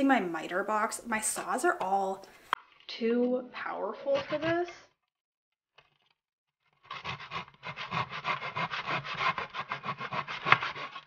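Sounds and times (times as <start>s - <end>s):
hand saw cutting wood: 3.8s - 4.7s, 6.7s - 11.0s.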